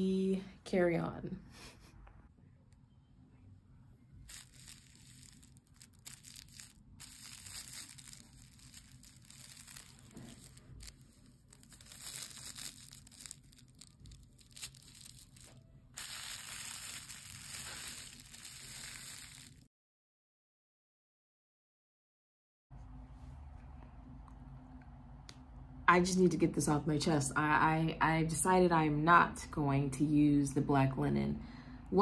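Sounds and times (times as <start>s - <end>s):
tissue paper crinkling: 4.3s - 19.6s.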